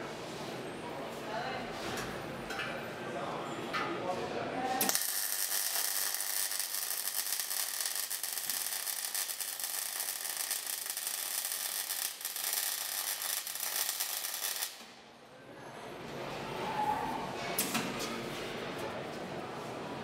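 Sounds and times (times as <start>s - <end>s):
welding arc crackling: 4.8s - 14.9s.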